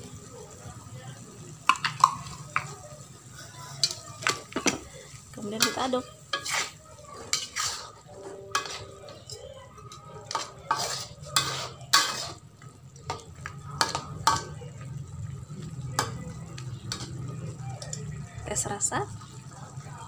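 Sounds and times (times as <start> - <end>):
chicken stirred in sauce: 1.5 - 18.4
metal spatula scraping wok: 5.4 - 13.2.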